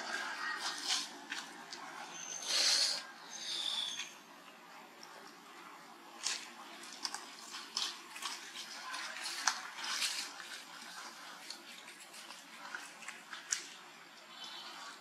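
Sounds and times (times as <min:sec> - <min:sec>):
plastic bag crinkling and rustling: 0:06.1 - 0:14.1.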